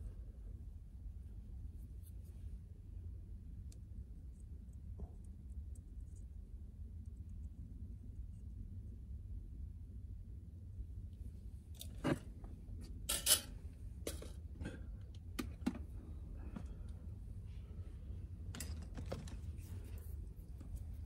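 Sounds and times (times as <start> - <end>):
low steady hum: 0.0 - 21.0
small tools clicking and clattering: 13.1 - 13.5, 18.5 - 19.4.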